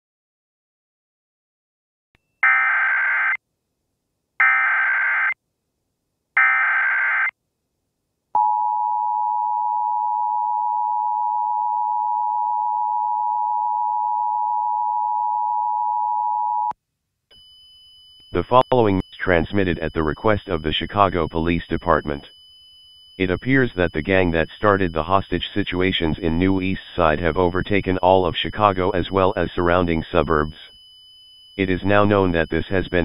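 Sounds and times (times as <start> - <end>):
digital data tone bursts: 17.4 - 33.0.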